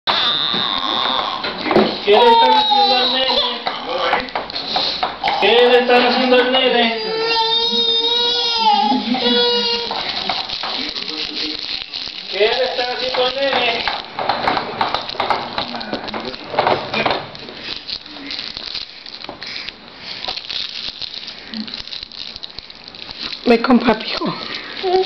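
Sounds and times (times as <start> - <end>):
baby walker plastic rattling: 1.6 - 4.3, 8.0 - 19.4.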